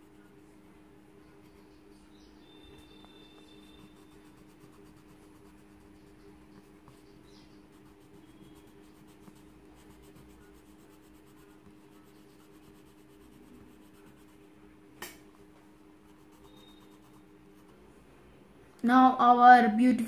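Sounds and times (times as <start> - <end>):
pencil scratching on paper: 2.8 - 14.5, 16.1 - 17.8.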